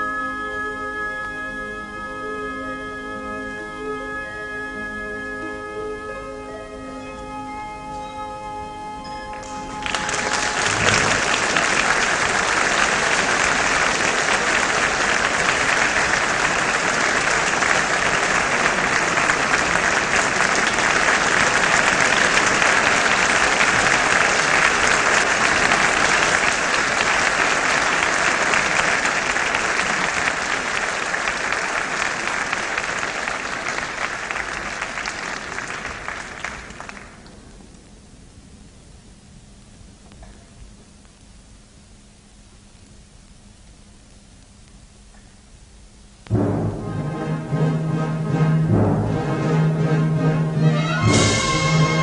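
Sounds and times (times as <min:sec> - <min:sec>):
audience applauding: 0:09.3 - 0:37.4, 0:50.8 - 0:52.0.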